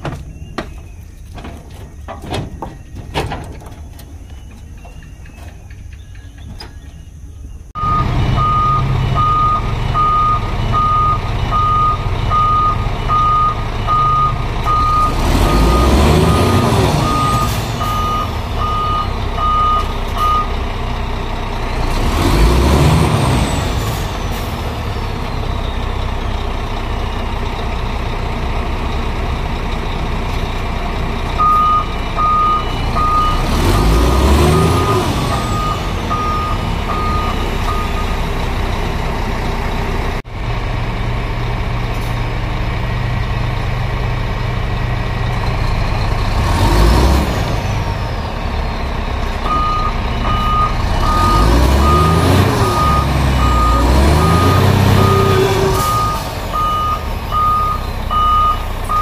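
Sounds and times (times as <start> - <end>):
truck engine revving: 7.6 - 59.0
alarm beeping: 7.8 - 20.5, 31.4 - 33.6, 34.4 - 38.3, 49.5 - 59.0.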